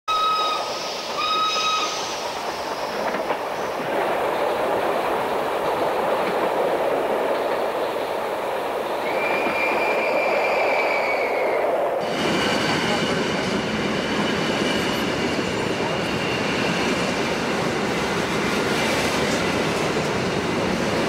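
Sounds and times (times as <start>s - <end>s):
train whistle: 0.1s - 2.1s, 9.0s - 11.6s
train rumbling on rails: 0.1s - 21.0s.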